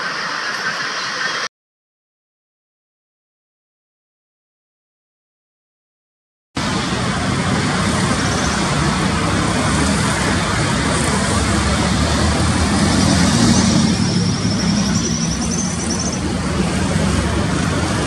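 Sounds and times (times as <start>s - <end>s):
faint high engine whine: 6.6s - 18.0s
jet engines rumbling: 6.6s - 18.0s.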